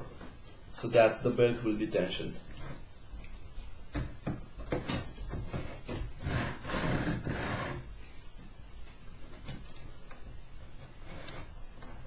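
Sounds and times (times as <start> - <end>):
rubbing and scraping: 4.7 - 9.5, 10.6 - 12.0.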